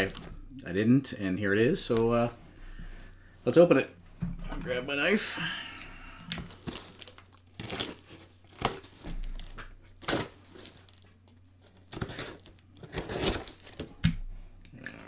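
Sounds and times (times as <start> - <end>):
cardboard crinkling: 6.4 - 14.0
packing tape tearing: 6.5 - 14.0.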